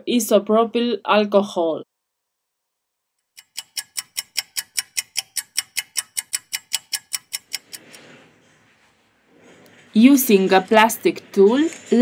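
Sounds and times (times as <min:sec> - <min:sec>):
clock ticking: 0:03.3 - 0:08.0.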